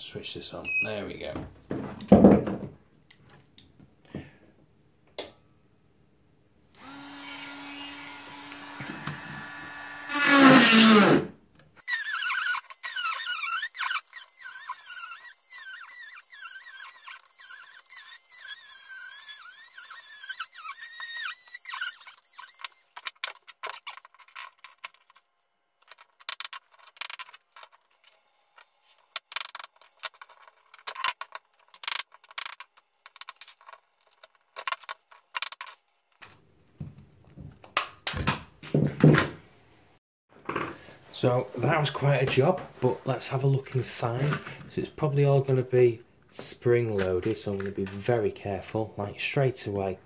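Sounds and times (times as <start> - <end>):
rotary tool grinding plastic: 6.8 - 11.2, 11.8 - 36.2.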